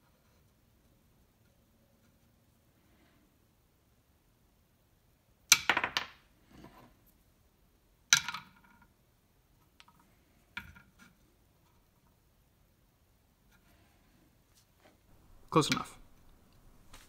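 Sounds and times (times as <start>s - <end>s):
chess piece dropped on wooden board: 5.5s - 6.2s, 8.1s - 8.9s, 10.6s - 11.0s.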